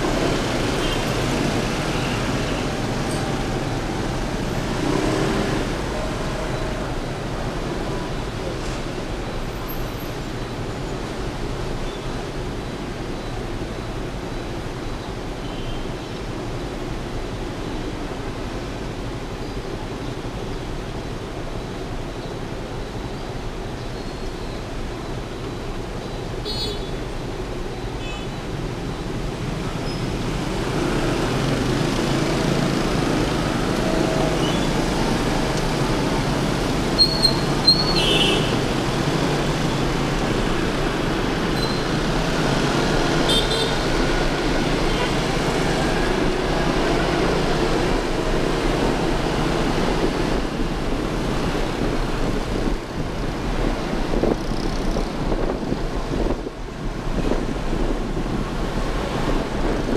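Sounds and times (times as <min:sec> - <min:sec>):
traffic noise: 0:00.0 - 0:59.9
wind rush: 0:48.8 - 0:59.9.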